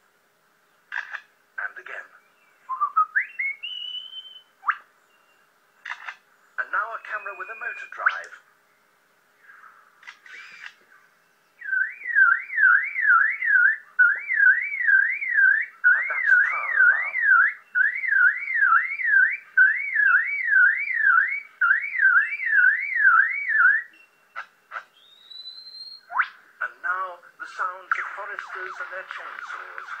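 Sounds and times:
person whistling siren-like warble: 11.6s - 24.0s.

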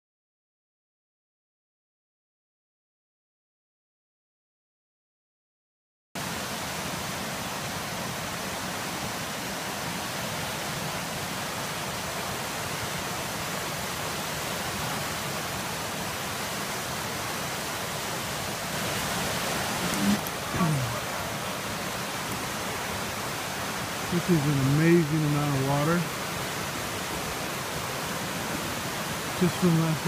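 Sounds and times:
river rushing: 6.2s - 30.0s.

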